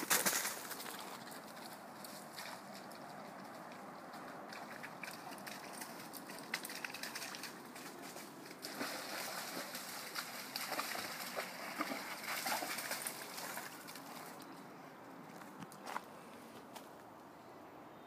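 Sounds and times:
rustles and steps: 0.0s - 8.8s, 9.5s - 14.6s, 15.2s - 17.2s
dog splashing in water: 8.5s - 14.3s.

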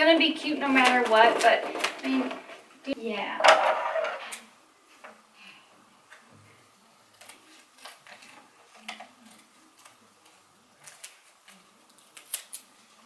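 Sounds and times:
paper rustling: 0.6s - 2.8s, 7.1s - 13.0s
scissors snipping paper: 7.1s - 13.0s.

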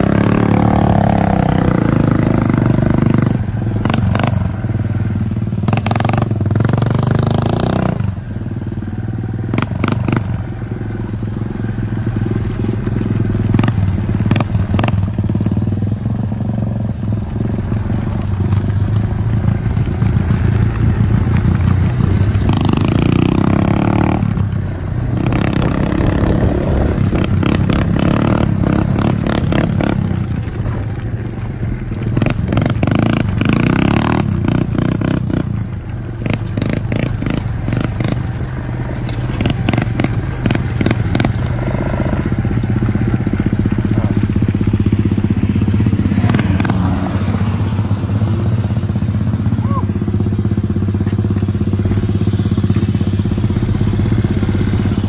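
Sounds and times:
quad engine revving: 0.0s - 8.6s, 9.5s - 55.0s
clatter and scraping: 12.4s - 47.2s.

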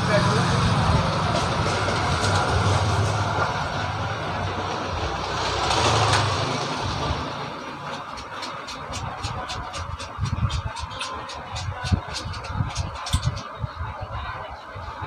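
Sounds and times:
motor vehicle engine passing: 0.0s - 9.5s.

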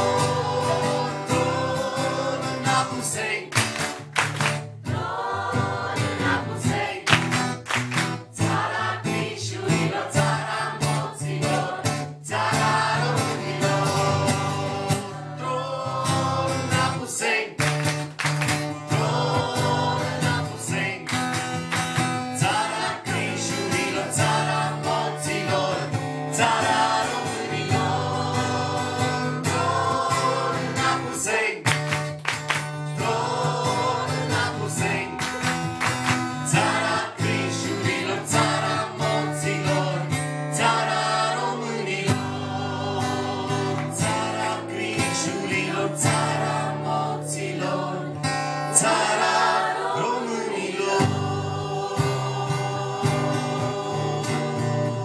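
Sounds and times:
crowd singing a folk song: 0.0s - 55.0s
strummed acoustic guitar: 0.0s - 55.0s.

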